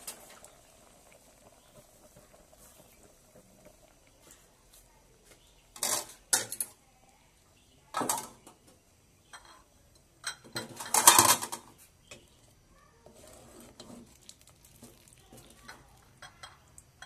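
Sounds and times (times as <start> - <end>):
ladle scraping in metal pot: 13.0 - 14.2.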